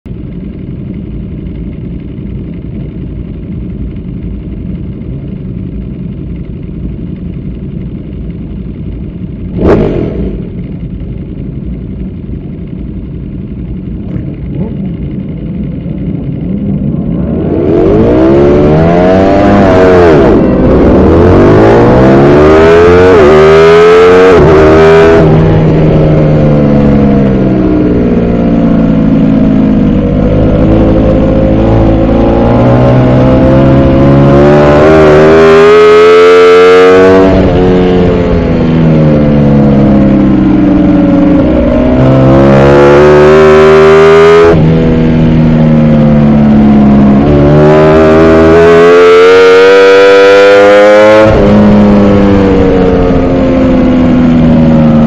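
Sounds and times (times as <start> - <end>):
motorcycle engines humming: 0.1 - 55.0
motorcycle engine revving through upshifts: 9.5 - 10.8, 17.0 - 55.0.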